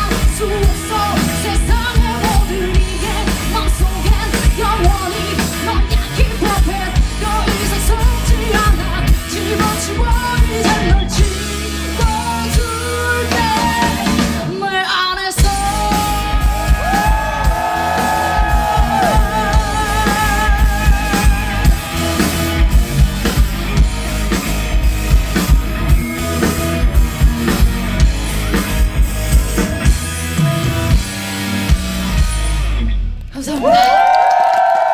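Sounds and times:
female singer: 0.0 - 17.4, 18.0 - 21.6
live rock band: 0.0 - 34.9.

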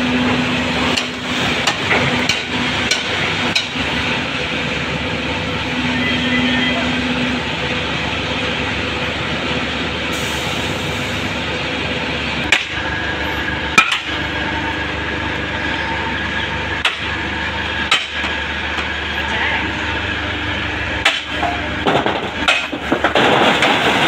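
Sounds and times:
machinery drone: 0.0 - 24.0.

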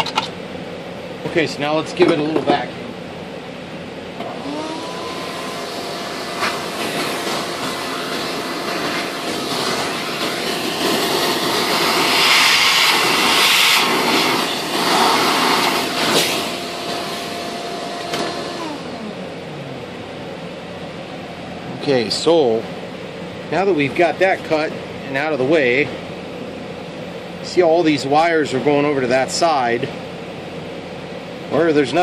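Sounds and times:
vacuum cleaner motor whining: 4.2 - 20.2
vacuum nozzle air hiss: 4.4 - 18.7.

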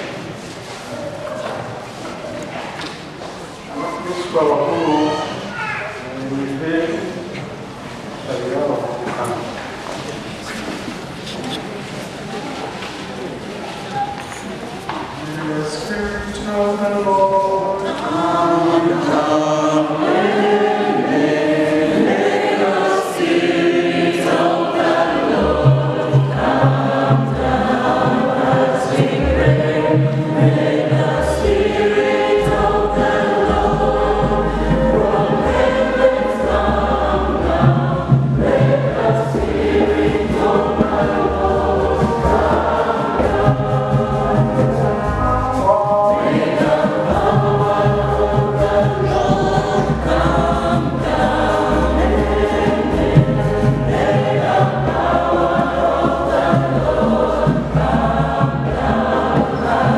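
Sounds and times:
choir singing a hymn: 2.9 - 5.5, 15.0 - 59.9
deep bass notes: 29.2 - 59.9.

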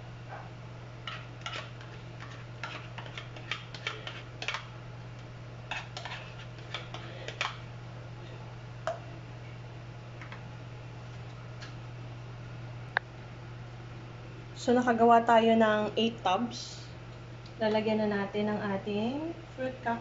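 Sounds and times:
metal spoon scraping plastic cup: 5.7 - 7.5.

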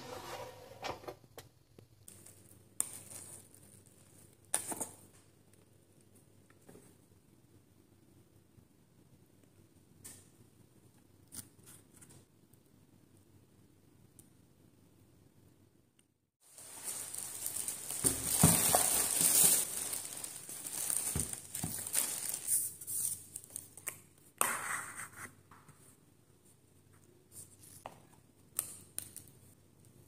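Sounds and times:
plastic wrappers tearing: 2.1 - 4.2, 16.5 - 23.8
plastic bag rustling: 2.2 - 4.3, 16.4 - 23.7.

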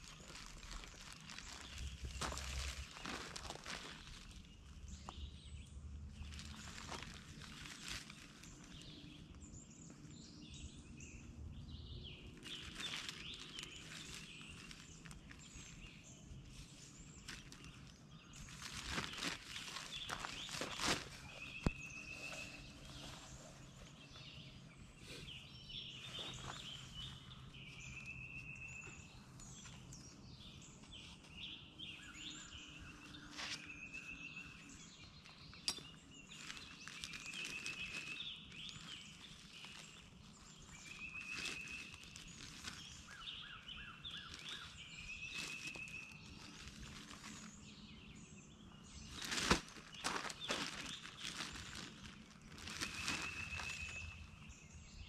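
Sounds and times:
birds chirping: 0.0 - 55.0
faint rustling: 12.4 - 24.5, 49.1 - 54.4.

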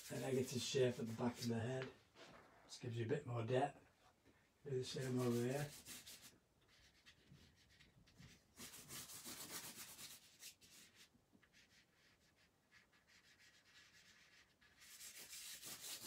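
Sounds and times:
charcoal rubbing on paper: 0.0 - 0.7, 5.0 - 16.0.

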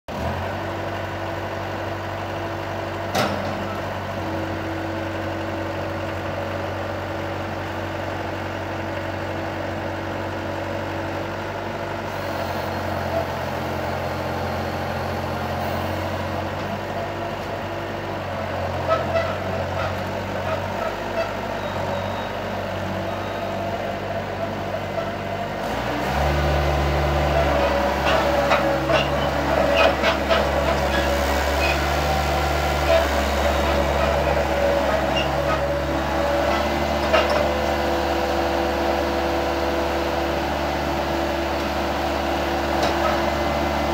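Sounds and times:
diesel engine running: 0.1 - 43.9.

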